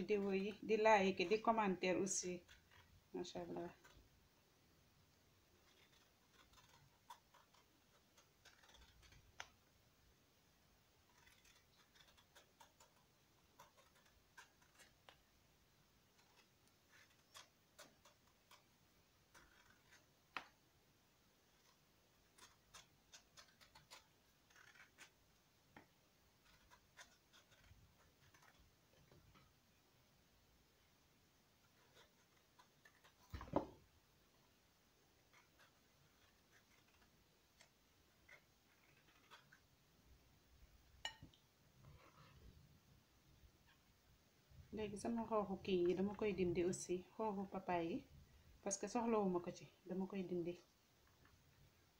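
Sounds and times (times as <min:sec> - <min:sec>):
blade peeling fruit skin: 0:05.6 - 0:09.7, 0:11.0 - 0:15.3, 0:16.1 - 0:20.6, 0:21.5 - 0:29.5, 0:35.2 - 0:39.6.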